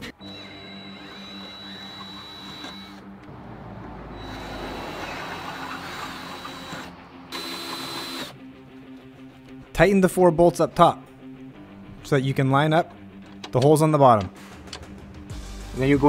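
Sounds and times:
cordless drill boring metal: 0.0s - 3.1s, 4.2s - 8.4s.

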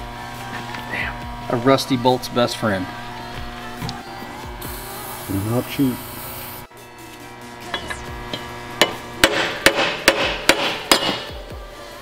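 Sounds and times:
hammer striking metal: 7.7s - 11.4s.

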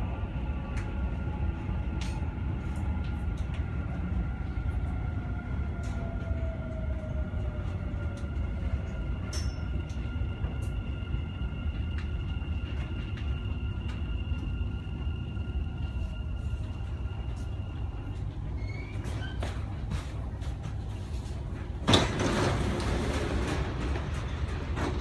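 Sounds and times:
train rumble: 0.0s - 25.0s.

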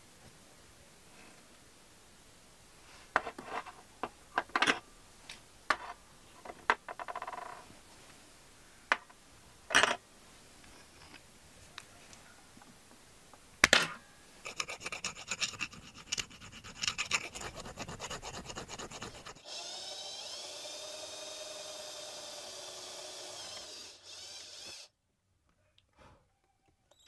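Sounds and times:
hand file scraping metal: 14.4s - 19.5s
electric drill drilling metal: 19.4s - 24.9s.

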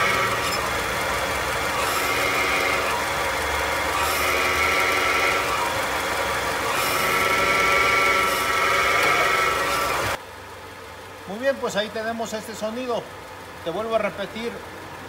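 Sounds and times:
high-pitched bearing noise: 0.0s - 10.2s
engine idling: 0.0s - 15.0s.

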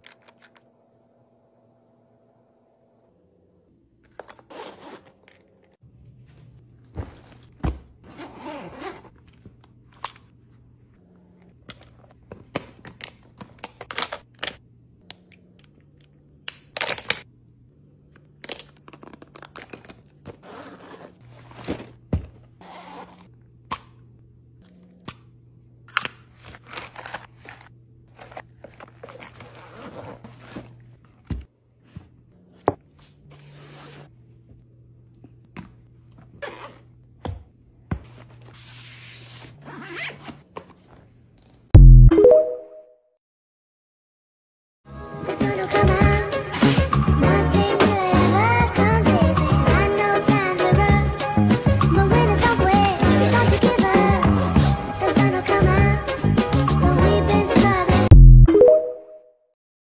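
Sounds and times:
rustling and crinkling of packing: 4.1s - 10.6s, 18.4s - 23.3s, 26.3s - 32.2s.

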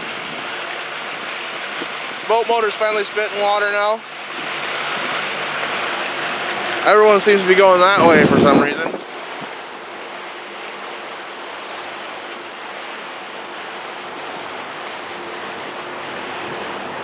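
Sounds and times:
river water lapping: 0.0s - 17.0s.

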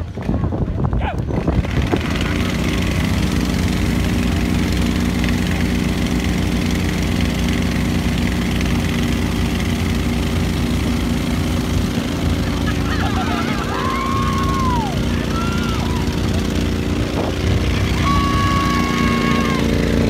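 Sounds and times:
small engine running steadily: 0.0s - 20.0s.

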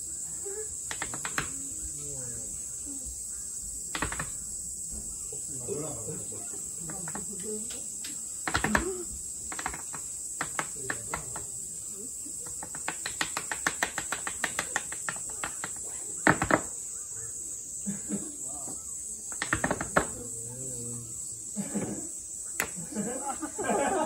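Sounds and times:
high insect drone: 0.0s - 24.0s
tap shoes striking wooden board: 9.5s - 11.5s, 12.5s - 16.7s, 19.3s - 20.2s.

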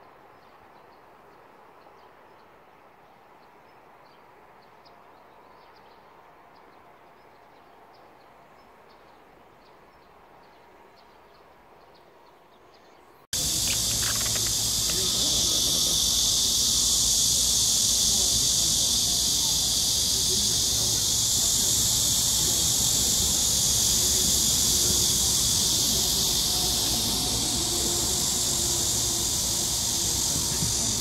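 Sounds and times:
insects chirring: 13.3s - 31.0s
light high ticks: 13.4s - 25.7s.

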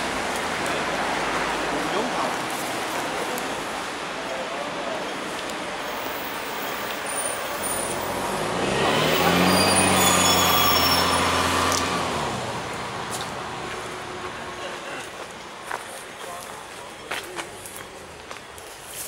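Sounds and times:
heavy vehicle engine passing: 5.9s - 15.0s.

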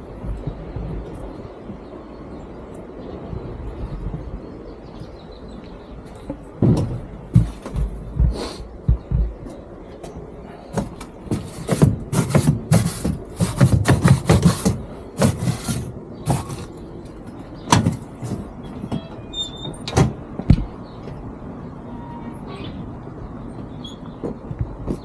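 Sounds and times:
footsteps on metal grating: 0.0s - 2.0s, 5.0s - 21.3s, 23.5s - 25.0s
metal gates knocking: 17.6s - 20.7s.

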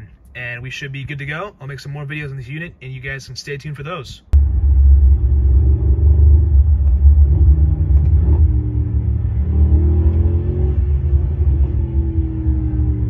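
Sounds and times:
car engine deep rumble: 4.3s - 13.0s.

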